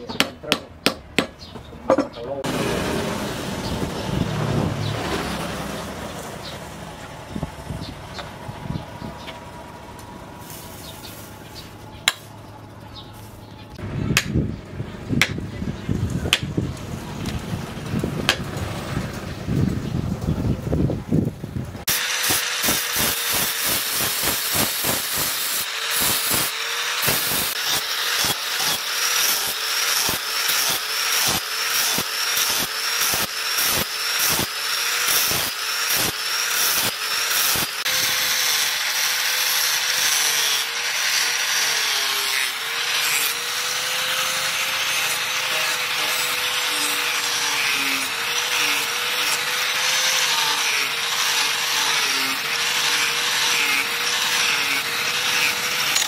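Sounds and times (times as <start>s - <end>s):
angle grinder sanding metal: 21.9s - 56.0s
sanding disc rasping on blade: 21.9s - 56.0s.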